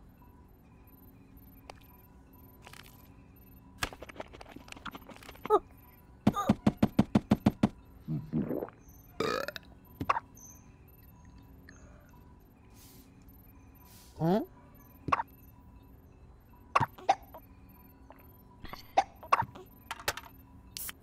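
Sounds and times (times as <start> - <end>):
cartoon burp rattle: 8.1 - 9.7.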